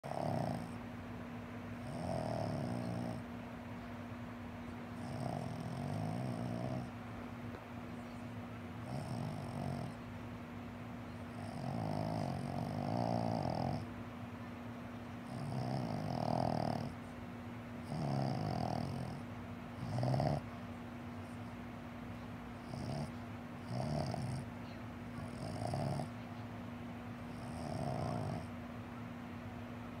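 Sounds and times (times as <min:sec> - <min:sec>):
dog snoring: 0:00.0 - 0:00.8, 0:01.8 - 0:03.3, 0:04.9 - 0:07.0, 0:08.8 - 0:10.0, 0:11.2 - 0:13.9, 0:15.2 - 0:17.1, 0:17.8 - 0:20.6, 0:22.6 - 0:24.5, 0:25.1 - 0:26.2, 0:27.2 - 0:28.6.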